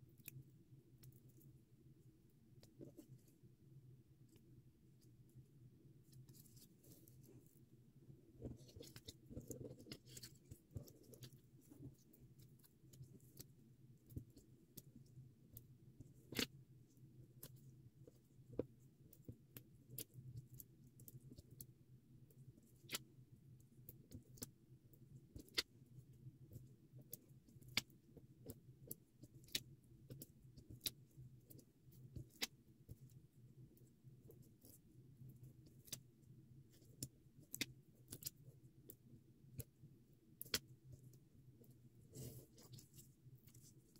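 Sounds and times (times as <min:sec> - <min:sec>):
low steady hum: 0:00.0 - 0:43.9
light clicks and taps of paper: 0:36.7 - 0:43.9.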